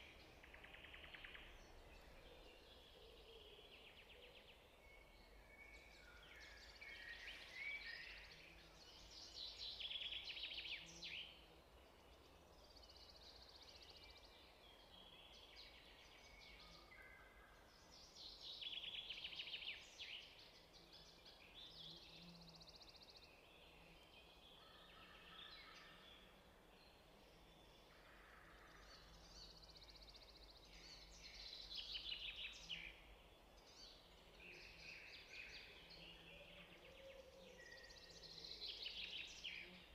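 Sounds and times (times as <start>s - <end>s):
songbird chirps and trills: 0.0s - 39.9s.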